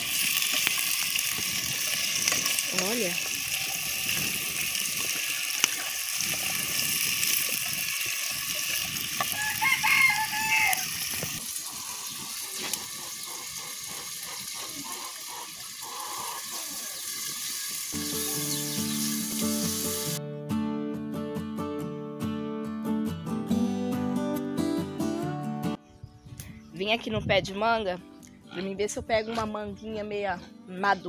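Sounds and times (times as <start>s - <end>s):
rooster crowing: 9.3s - 11.0s
acoustic guitar music: 18.0s - 25.8s.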